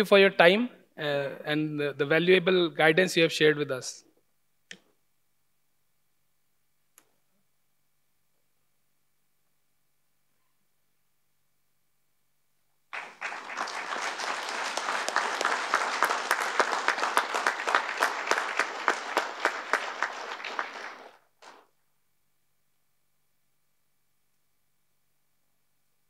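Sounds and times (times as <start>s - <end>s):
audience applause: 12.9s - 21.6s.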